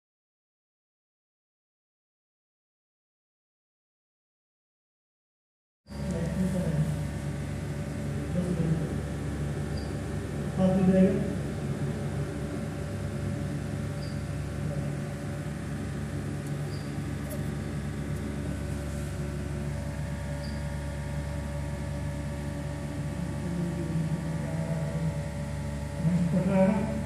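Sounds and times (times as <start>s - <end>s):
electrical hum from starter panel: 5.9s - 27.0s.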